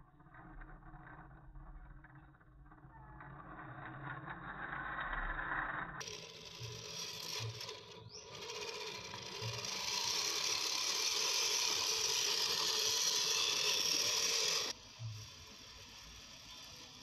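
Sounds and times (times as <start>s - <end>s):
rising motor whine: 4.4s - 17.0s
electric motor whirring: 6.0s - 17.0s.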